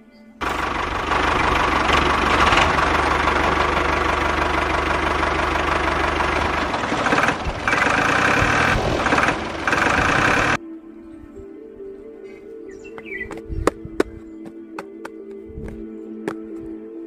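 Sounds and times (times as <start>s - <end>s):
tractor engine idling with knock: 0.4s - 10.6s.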